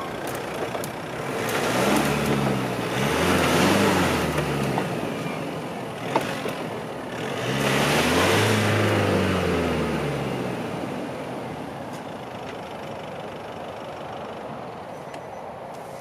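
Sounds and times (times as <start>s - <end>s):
wheels spinning in mud: 0.0s - 5.0s
pickup engine revving: 1.1s - 11.7s.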